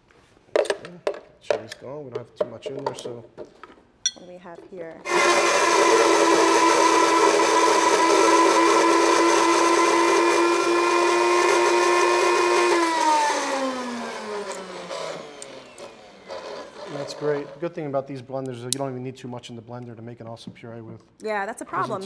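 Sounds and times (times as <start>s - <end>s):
kitchen blender running: 5.0s - 17.8s.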